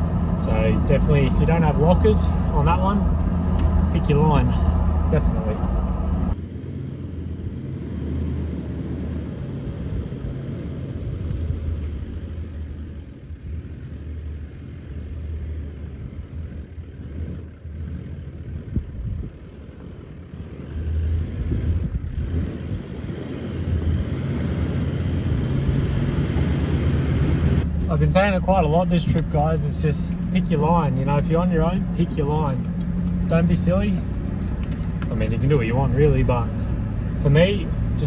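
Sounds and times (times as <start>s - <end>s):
low engine note: 0.0s - 38.0s.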